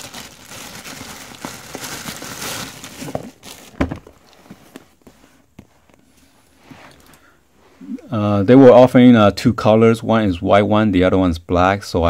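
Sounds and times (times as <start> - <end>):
plastic wrapping crinkling: 0.0 - 5.1.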